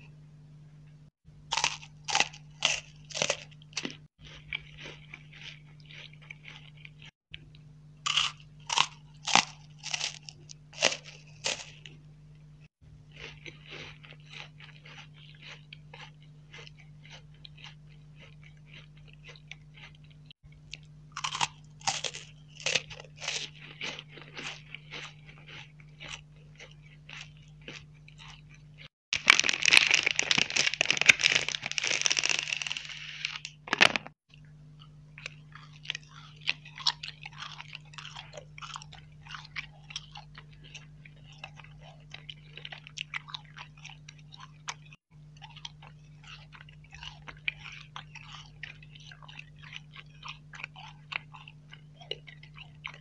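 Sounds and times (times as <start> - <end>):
chewing and crunching sweets: 1.4 - 53.0.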